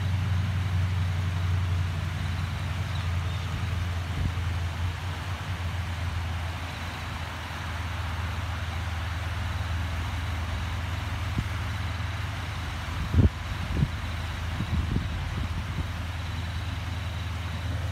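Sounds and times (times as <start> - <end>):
water rushing over weir: 0.0 - 17.9
wind rumble on microphone: 2.4 - 7.4, 11.2 - 17.9.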